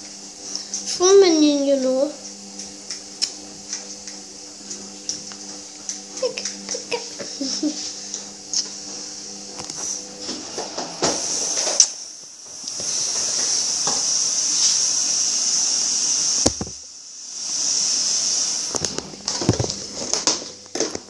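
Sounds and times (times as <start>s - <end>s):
high hiss: 9.8s - 19.0s.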